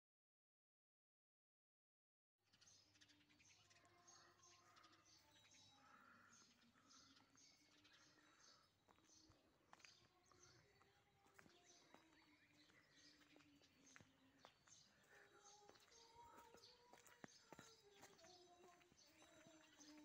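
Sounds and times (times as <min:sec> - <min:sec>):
small birds chirping: 0:02.5 - 0:20.0
distant voices singing held notes: 0:03.8 - 0:20.0.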